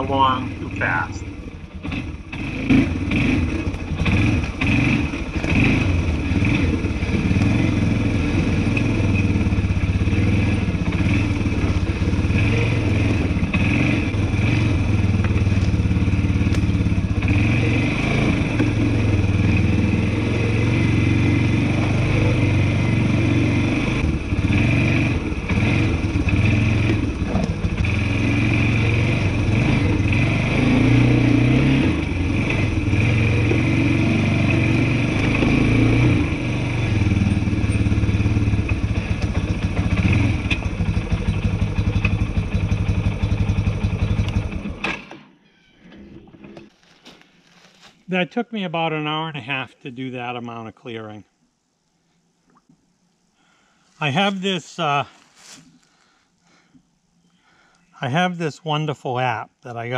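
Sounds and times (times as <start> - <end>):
atv engine running: 0.0 - 45.3.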